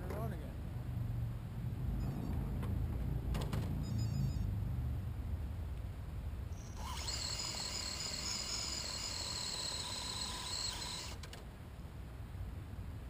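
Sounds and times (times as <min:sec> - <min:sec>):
high-pitched electric motor whine: 0:06.5 - 0:11.2.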